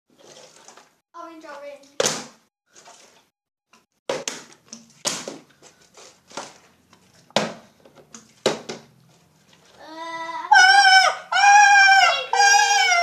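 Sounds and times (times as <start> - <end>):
plastic bottles landing on tiled floor: 2.0 - 3.2, 4.1 - 6.7, 7.3 - 9.0.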